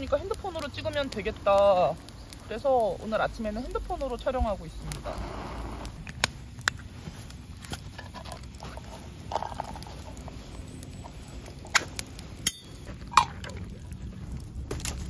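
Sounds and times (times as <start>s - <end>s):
wood fire burning: 0.0s - 15.0s.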